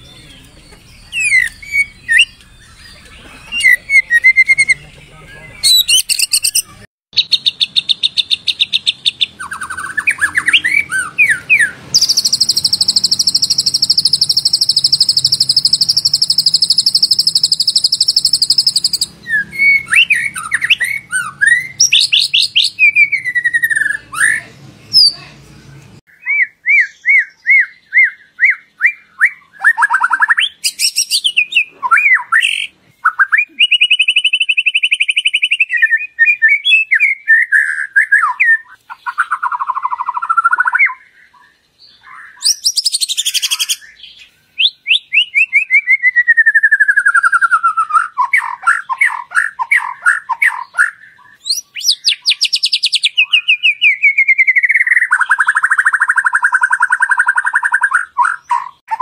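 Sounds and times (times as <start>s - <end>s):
bird singing whistled phrases: 0.0s - 25.2s, 26.1s - 59.0s.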